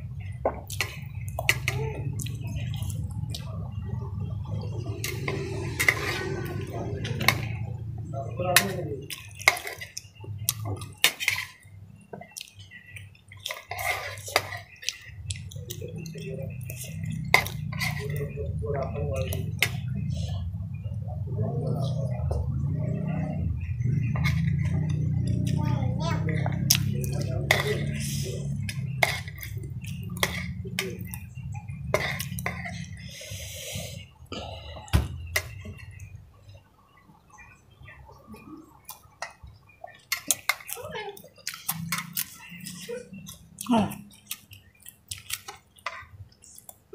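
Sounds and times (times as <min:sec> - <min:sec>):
steady low hum: 0:00.0 - 0:40.6
metal spoon scraping ceramic bowl: 0:28.6 - 0:29.6.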